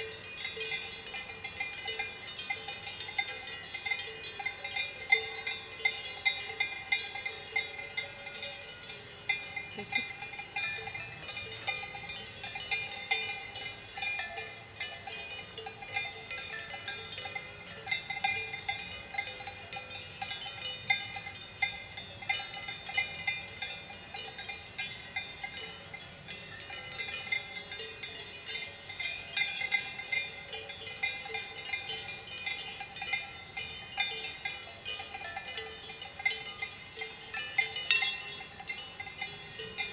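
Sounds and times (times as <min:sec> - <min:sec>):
cowbells clanking: 0:00.0 - 0:39.9.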